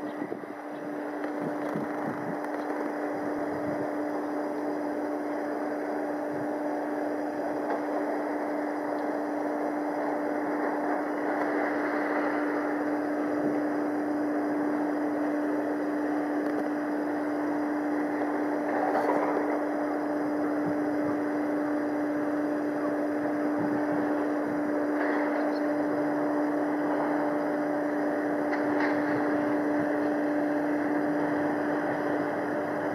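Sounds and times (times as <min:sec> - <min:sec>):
steady mechanical hum: 0:00.0 - 0:32.9.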